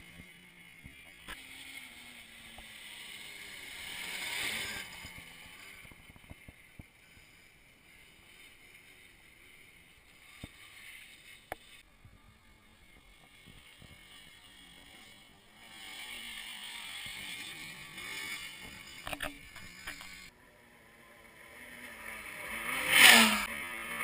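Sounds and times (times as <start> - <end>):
quad bike engine: 0.0 - 24.0.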